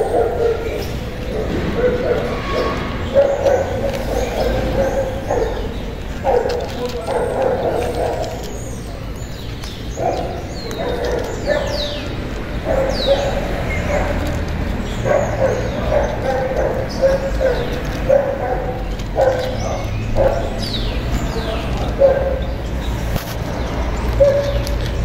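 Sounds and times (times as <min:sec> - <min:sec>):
repeated animal calls: 0:00.0 - 0:08.7
birds chirping: 0:00.0 - 0:25.0.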